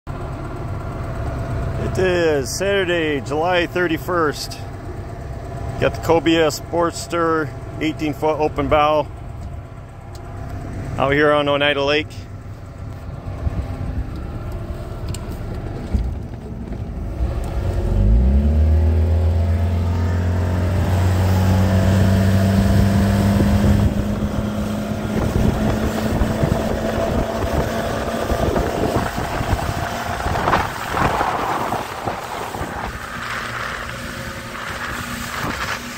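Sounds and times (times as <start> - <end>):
boat engine revving: 0.4 - 12.2, 13.2 - 35.9
wind buffeting microphone: 20.8 - 35.9.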